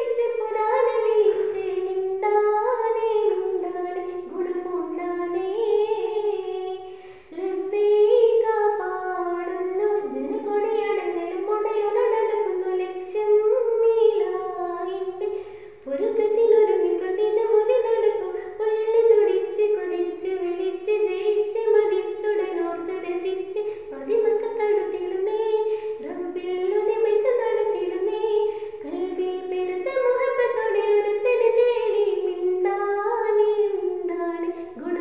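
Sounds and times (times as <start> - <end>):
girl singing solo: 0.0 - 35.0.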